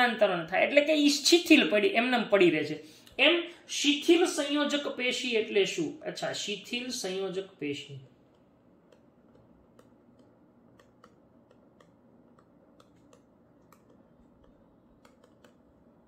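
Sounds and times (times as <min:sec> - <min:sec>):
stylus tapping on touchscreen: 0:08.1 - 0:15.9.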